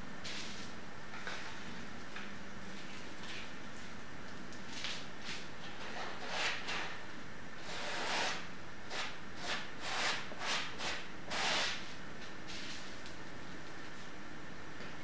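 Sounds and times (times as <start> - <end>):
palette knife scraping paint on canvas: 7.6 - 11.8.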